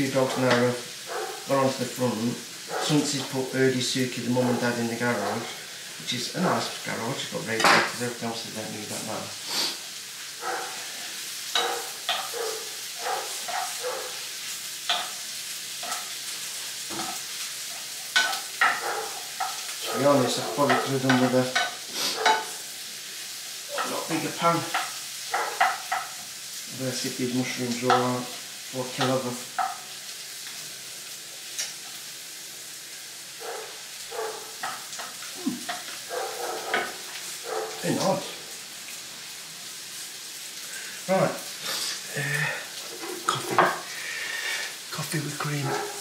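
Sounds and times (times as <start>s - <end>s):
light sizzle: 0.0s - 46.0s
spoon scraping frying pan: 8.8s - 26.6s, 27.2s - 30.6s, 33.4s - 37.8s
utensil scraping pan: 15.8s - 22.6s.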